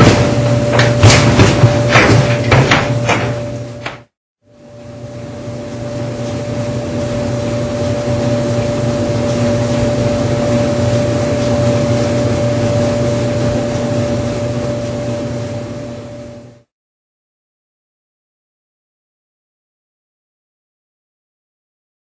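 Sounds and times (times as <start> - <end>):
clothes dryer running: 0.0 - 16.7.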